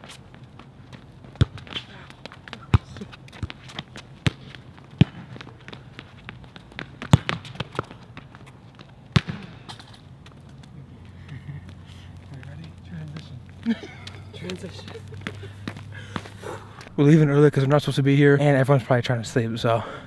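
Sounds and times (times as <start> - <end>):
sneakers scuffing on court: 0.0 - 17.0
ball kicked on hard court: 1.2 - 9.9.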